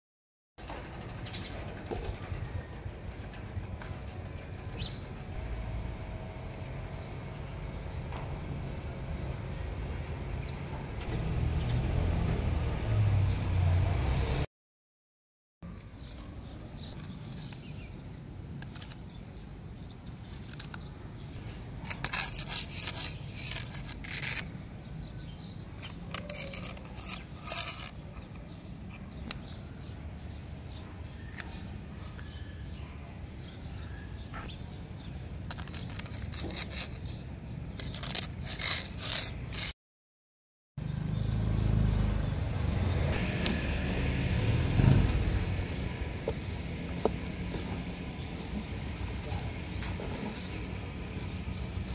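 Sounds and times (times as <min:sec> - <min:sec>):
outdoor background noise: 0:00.6 - 0:14.5, 0:15.6 - 0:39.8, 0:40.8 - 0:51.9
dry leaf crackling: 0:43.2 - 0:51.9.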